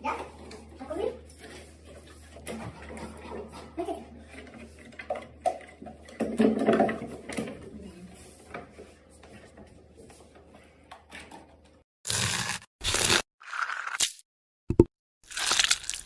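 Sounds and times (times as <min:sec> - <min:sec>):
knocks and rattles of wood: 0:04.4 - 0:07.6.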